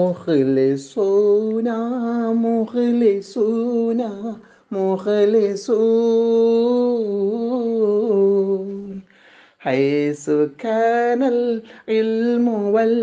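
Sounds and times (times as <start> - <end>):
man singing unaccompanied: 0.0 - 13.0.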